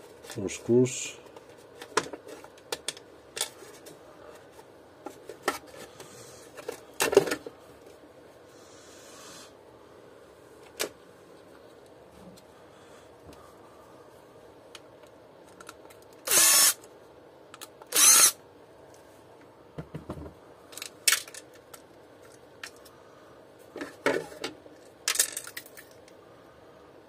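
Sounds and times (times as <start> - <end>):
impact driver bursts: 16.3 - 16.8, 17.9 - 18.4
plastic parts clicking and knocking: 23.8 - 26.0.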